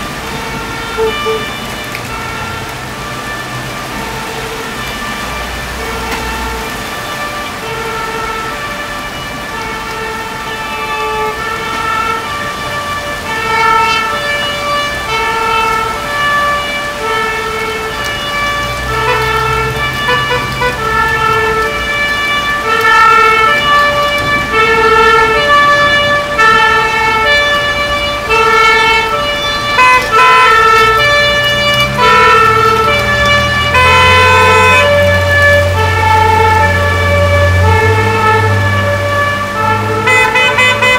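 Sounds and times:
fire engine two-tone siren: 0.0s - 40.9s
heavy engine rumble: 13.1s - 40.9s.

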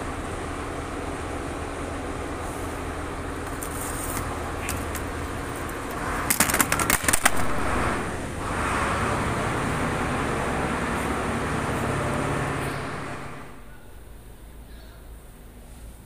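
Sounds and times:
workshop hum: 0.0s - 16.0s
sharp clicks and clatter: 3.4s - 8.0s.

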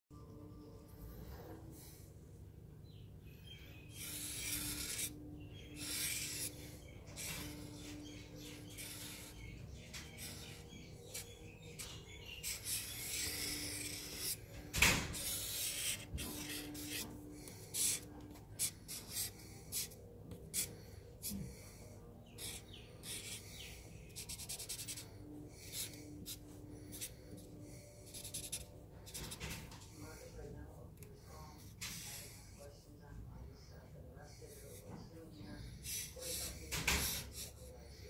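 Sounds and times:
marker scratching on paper: 3.8s - 30.3s, 31.3s - 32.7s, 35.6s - 38.0s.

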